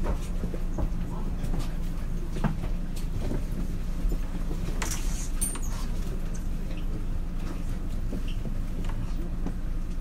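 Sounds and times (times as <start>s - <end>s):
electric train low rumble: 0.0s - 5.0s.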